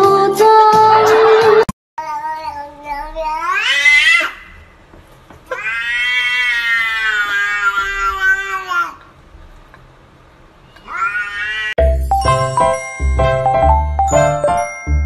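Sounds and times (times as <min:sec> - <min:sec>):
cat yowling: 0:02.9 - 0:04.6, 0:05.5 - 0:09.0, 0:10.8 - 0:11.8.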